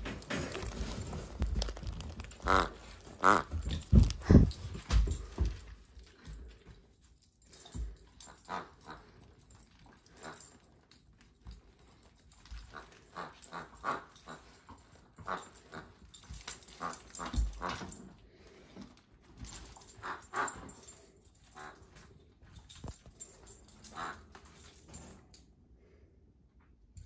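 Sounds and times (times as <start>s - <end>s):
paws scuffing on wooden floor: 0.0s - 6.8s.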